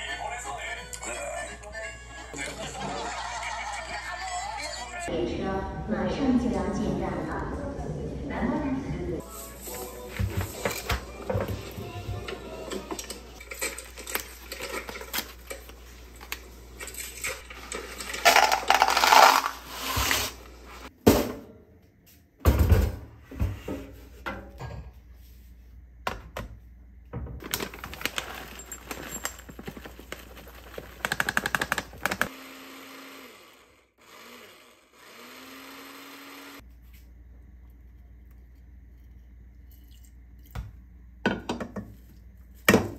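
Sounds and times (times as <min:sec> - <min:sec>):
dry pasta rattling into jar: 0:17.6 - 0:19.6
blender motor humming: 0:31.2 - 0:36.6.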